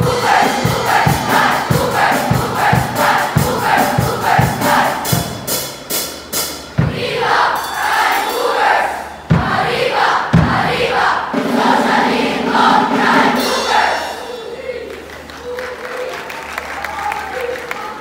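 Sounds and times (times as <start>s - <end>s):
crowd chanting a cheer: 0.0s - 5.2s, 6.8s - 15.8s
steady drum beat: 0.0s - 14.5s.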